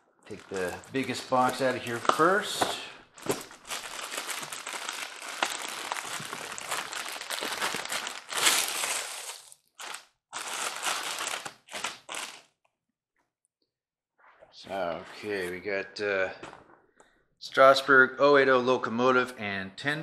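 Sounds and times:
plastic bag crinkling: 0.3s - 12.5s.

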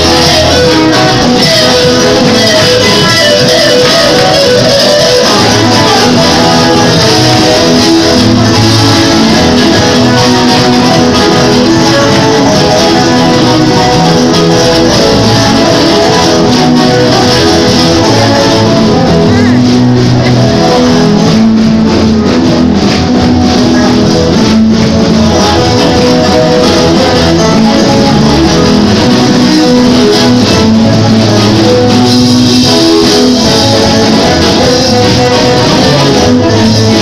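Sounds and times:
live church praise music: 0.0s - 37.0s.

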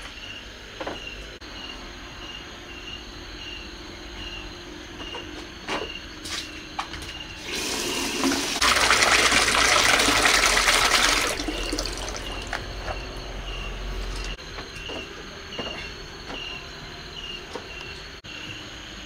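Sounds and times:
tap water pouring into basin: 7.4s - 12.6s.

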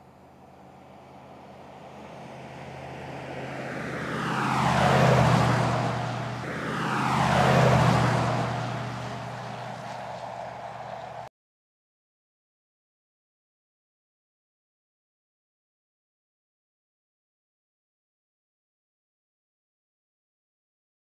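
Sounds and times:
car engine driving past: 0.6s - 11.3s.

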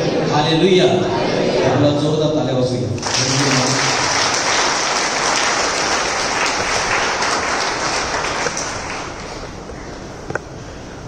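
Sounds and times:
crowd applauding: 3.0s - 9.7s.

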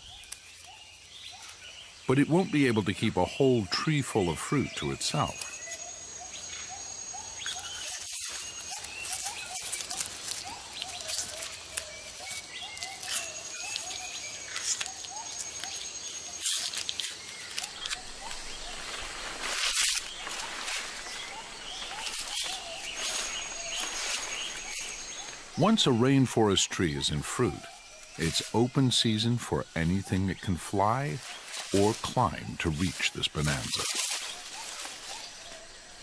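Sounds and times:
insects hissing: 0.0s - 36.0s
rustling crackles: 5.1s - 25.7s, 27.4s - 36.0s
thin insect whine: 5.4s - 25.6s.

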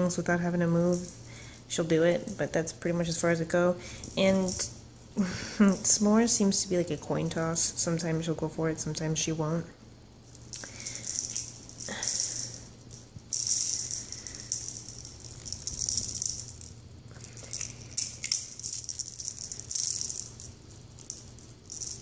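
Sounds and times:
small bell jingling and rattling: 0.7s - 6.4s, 10.2s - 22.0s.

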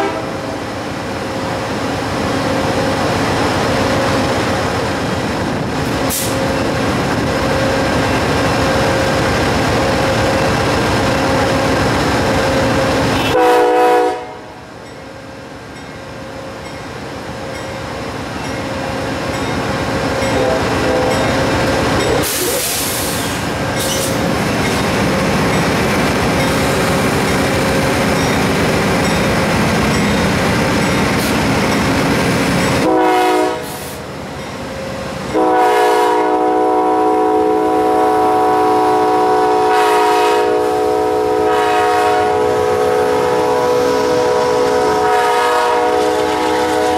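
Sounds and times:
train horn blasts: 0.0s - 0.5s, 13.1s - 14.6s, 20.3s - 21.5s, 32.8s - 34.0s, 35.3s - 46.9s
diesel locomotive engine drone: 0.0s - 46.9s.

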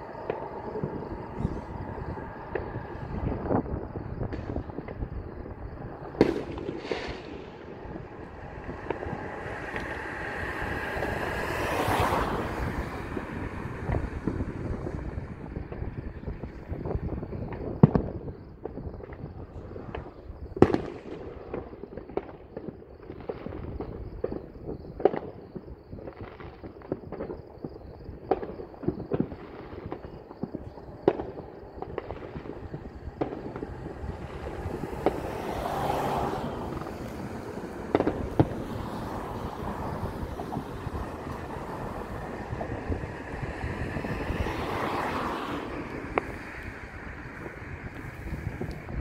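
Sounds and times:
distant fireworks bangs and crackles: 0.0s - 49.0s.

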